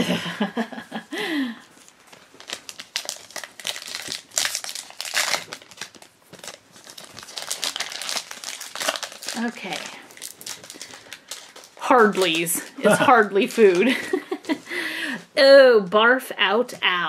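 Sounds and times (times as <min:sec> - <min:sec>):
foil wrapper crinkling and tearing: 0:01.8 - 0:14.6.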